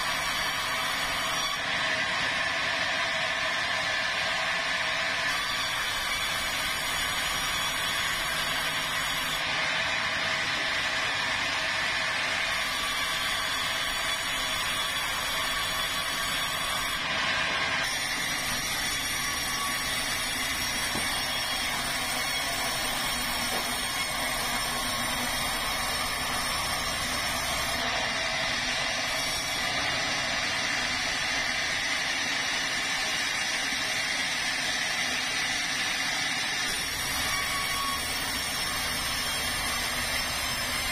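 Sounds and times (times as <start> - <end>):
band saw cutting a log: 0.0 - 40.9.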